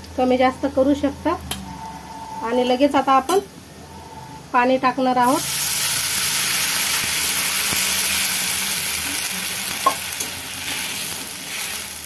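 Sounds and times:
water sizzling in hot oil: 0:05.2 - 0:12.0.

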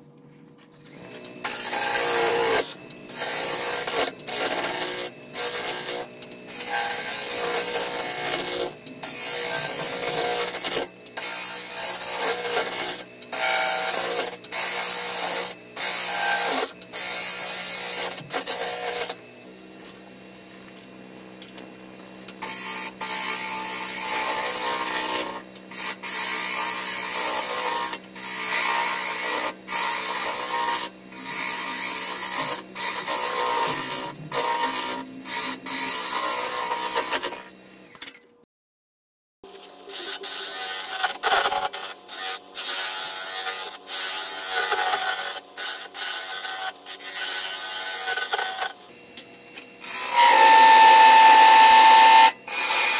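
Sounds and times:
turning tool scraping wood: 0:00.7 - 0:19.2, 0:26.0 - 0:37.5, 0:39.5 - 0:48.8, 0:49.9 - 0:52.9
lathe humming: 0:00.9 - 0:20.1, 0:46.1 - 0:52.9.

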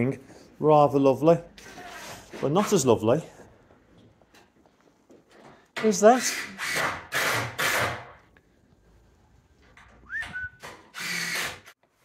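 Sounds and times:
rising whistle: 0:10.0 - 0:10.7.

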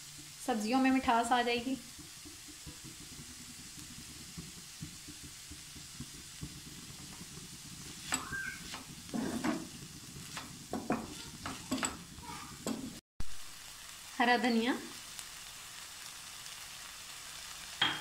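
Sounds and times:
wooden spatula scraping a pan: 0:00.0 - 0:13.0
vegetables sizzling in a frying pan: 0:00.0 - 0:18.0.

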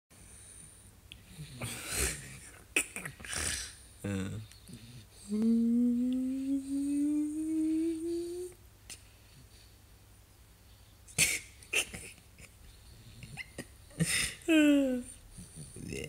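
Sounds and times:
rustling and breathy noises: 0:00.2 - 0:16.0
person humming rising pitch: 0:05.3 - 0:08.6.

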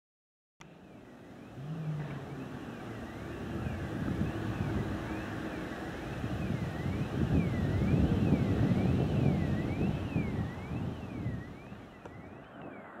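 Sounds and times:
faint rising and falling tone: 0:00.6 - 0:13.0
steam locomotive rumble: 0:01.2 - 0:10.6
wind on microphone: 0:01.3 - 0:13.0.

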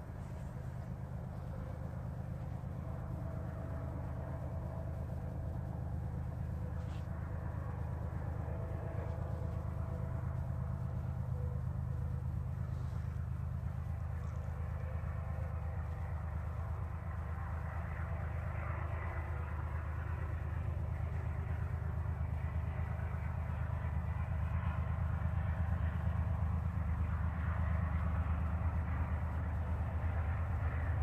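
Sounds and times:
diesel locomotive engine drone: 0:00.0 - 0:31.0
wheels rumbling on rail: 0:00.0 - 0:31.0.

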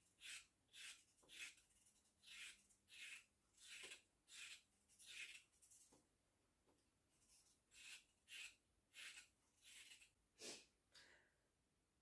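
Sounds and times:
knife scraping vegetable peel: 0:00.0 - 0:05.8, 0:07.3 - 0:10.6.

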